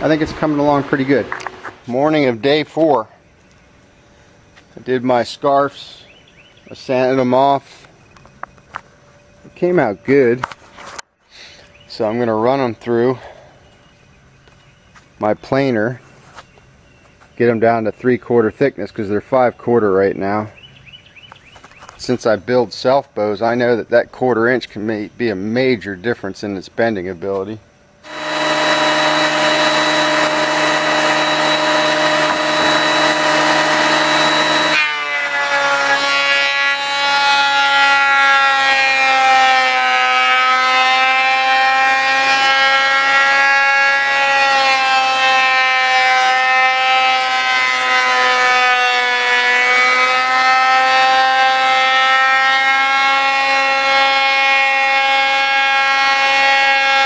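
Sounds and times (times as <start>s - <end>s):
thickness planer whining: 0.0s - 2.9s, 28.0s - 57.0s.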